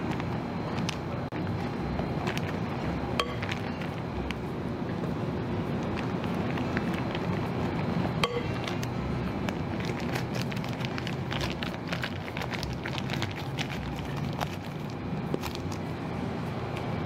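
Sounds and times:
plastic piping bag crinkling: 0.0s - 4.4s, 5.7s - 7.7s, 8.6s - 15.9s
steady low hum: 0.0s - 17.0s.

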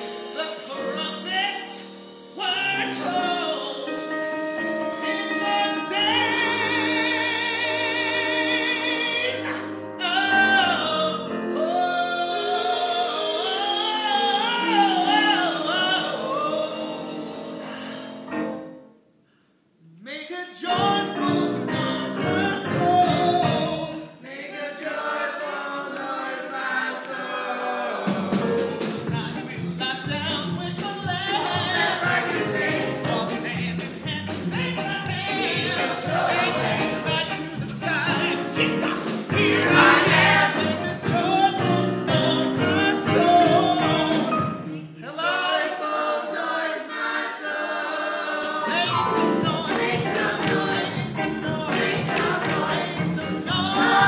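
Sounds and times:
cast singing show tune: 26.6s - 54.0s.

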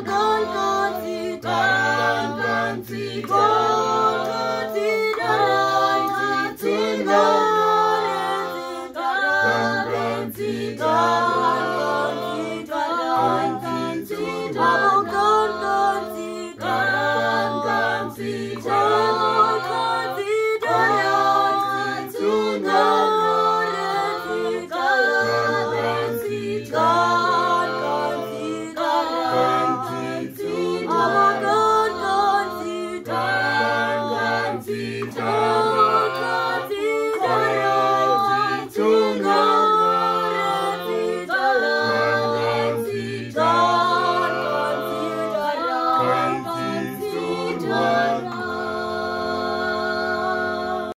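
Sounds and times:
choir singing a cappella: 0.0s - 50.9s.

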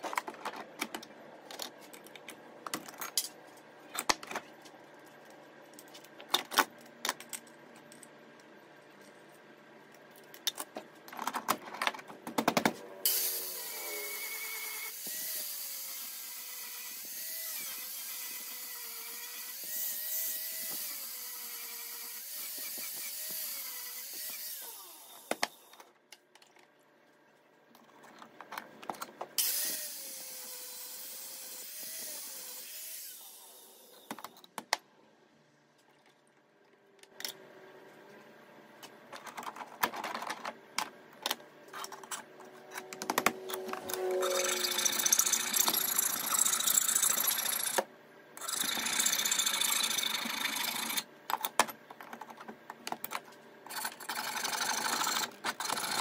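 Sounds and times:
file scraping blade: 41.7s - 47.6s.

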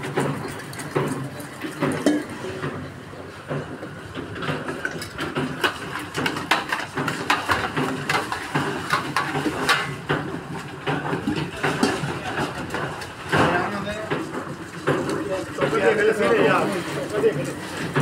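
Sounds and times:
steel ladle clinking on plates: 2.0s - 2.3s.

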